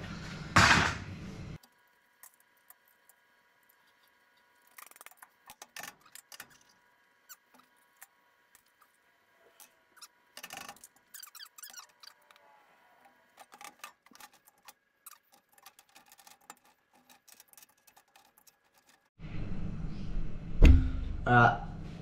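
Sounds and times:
metal parts clicking and rattling: 9.6s - 12.4s, 13.2s - 19.1s.

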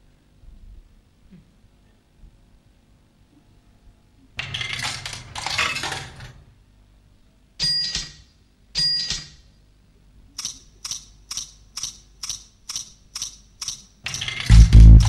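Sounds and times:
light evenly spaced ticks: 10.4s - 13.9s.

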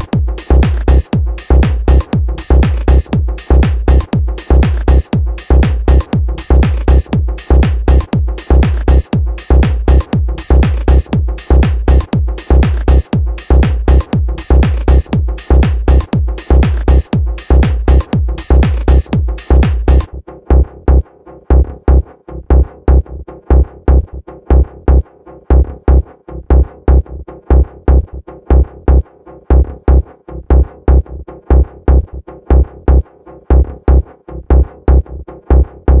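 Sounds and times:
bright hi-hat and cymbal: 0.0s - 20.1s
repeating synth chords: 0.0s - 20.1s
kick drum steady beat: 0.0s - 36.0s.

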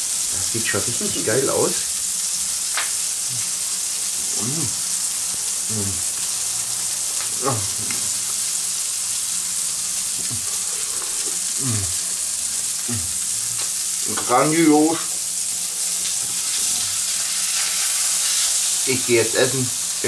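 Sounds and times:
burger sizzling in a frying pan: 0.0s - 20.0s
person humming while eating: 3.2s - 3.6s, 4.2s - 4.9s, 5.6s - 6.1s, 7.3s - 8.1s, 10.2s - 12.2s, 12.8s - 13.6s.

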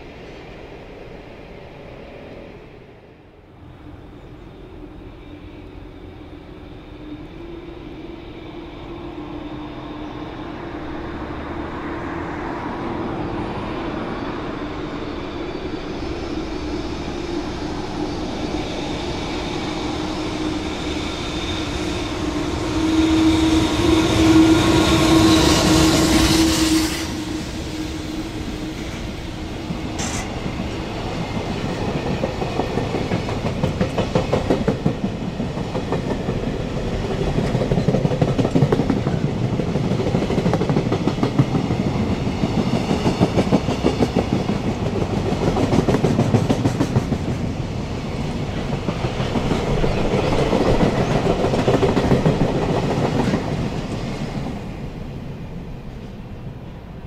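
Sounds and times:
electric locomotive hum: 0.0s - 57.0s.

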